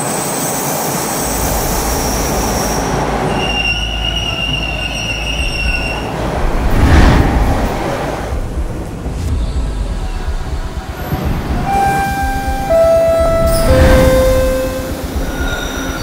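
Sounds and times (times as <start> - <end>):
subway train low rumble: 0.0 - 16.0
rush of noise: 6.0 - 16.0
high whine: 11.6 - 15.8
high-pitched steady tones: 11.6 - 15.8.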